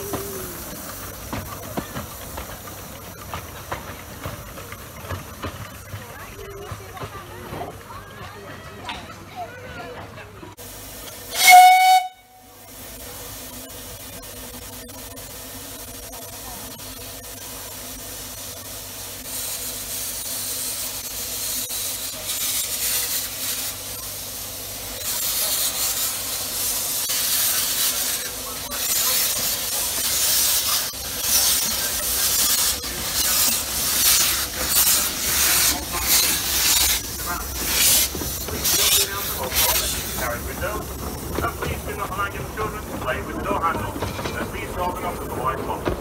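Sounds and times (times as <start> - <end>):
steam hissing: 0.0 - 8.2, 10.5 - 46.0
steam locomotive puffs: 0.0 - 46.0
shrill steam whistle blast: 11.3 - 12.5.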